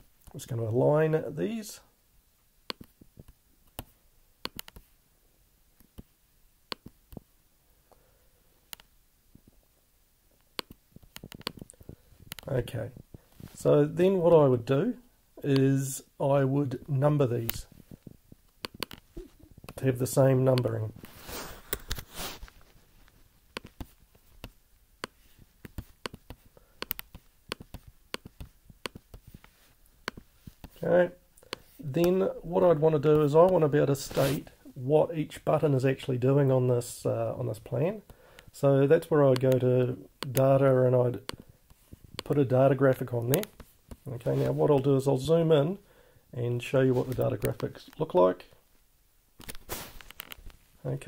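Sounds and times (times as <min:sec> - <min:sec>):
computer mouse clicking: 0:02.7 - 0:04.9, 0:06.7 - 0:07.2, 0:08.7 - 0:08.9, 0:10.4 - 0:12.5, 0:18.5 - 0:19.8, 0:23.5 - 0:30.8, 0:43.3 - 0:44.0.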